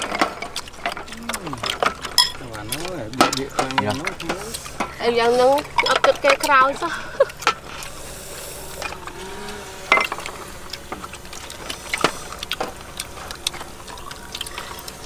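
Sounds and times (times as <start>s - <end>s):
snail shells clicking on metal trays: 0.0s - 8.0s.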